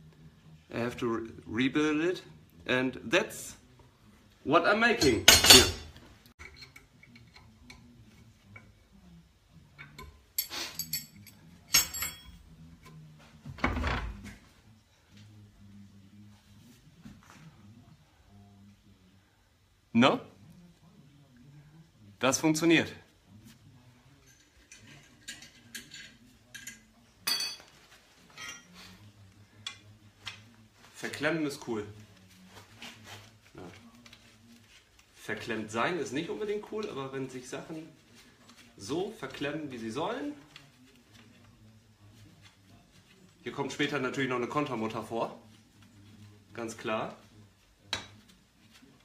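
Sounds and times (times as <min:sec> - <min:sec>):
steel rods clinking against vise: 0:09.8 - 0:12.4.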